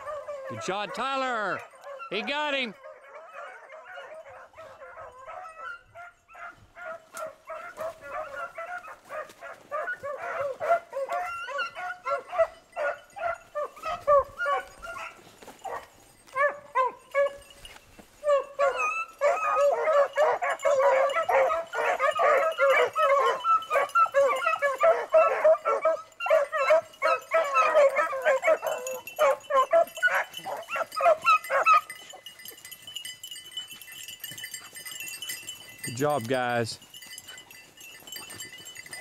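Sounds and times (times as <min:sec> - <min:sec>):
beagles baying and yelping: 0:00.0 - 0:39.0.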